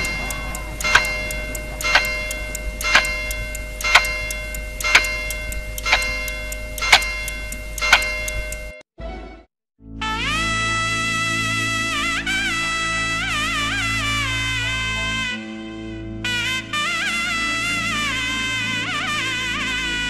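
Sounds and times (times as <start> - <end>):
metallic timer ticking: 0.0 - 8.8.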